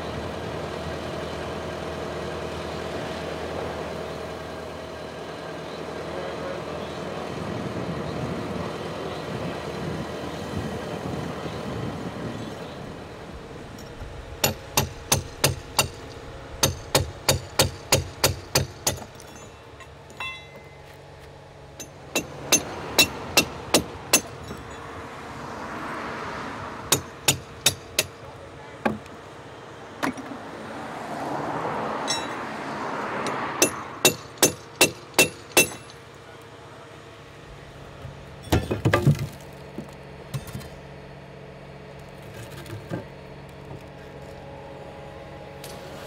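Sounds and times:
hammer striking steel: 13.8s - 21.0s, 21.8s - 24.8s, 26.9s - 28.2s, 32.0s - 32.5s, 33.2s - 36.0s.

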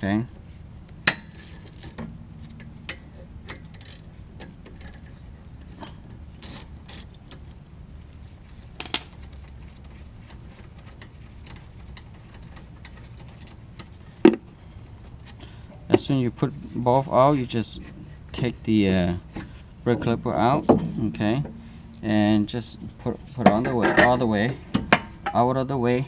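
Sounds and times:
metal clank: 19.3s - 22.7s.

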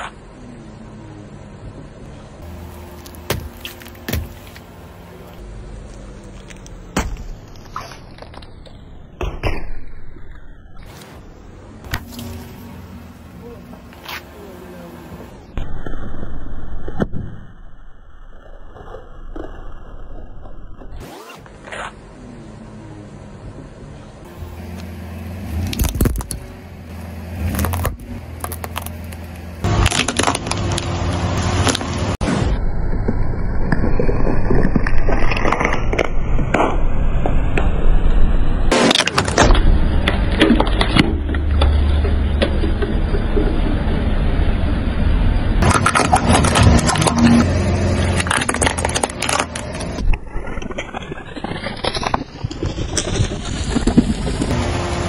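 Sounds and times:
car engine running: 0.0s - 9.3s, 11.0s - 15.6s, 20.0s - 32.2s, 37.6s - 55.0s
car tyre crushing packet: 25.6s - 26.4s, 27.4s - 32.0s, 38.7s - 43.4s, 45.6s - 54.6s.

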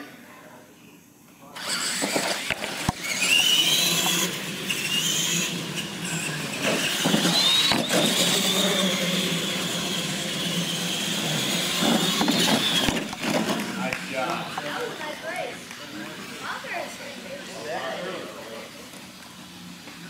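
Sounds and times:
toy truck motors whining: 1.6s - 15.5s.

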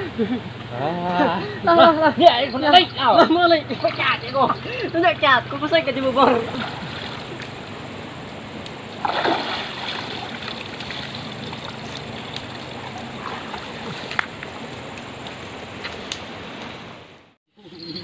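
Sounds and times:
river water splashing: 3.4s - 17.2s.

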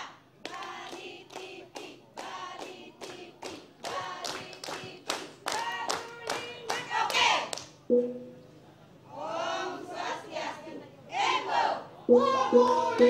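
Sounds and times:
hands clapping in time: 0.5s - 6.8s.

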